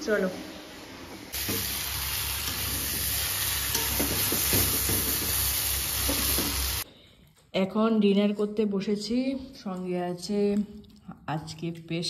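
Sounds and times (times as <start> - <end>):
meat sizzling in hot oil: 1.3 - 6.8.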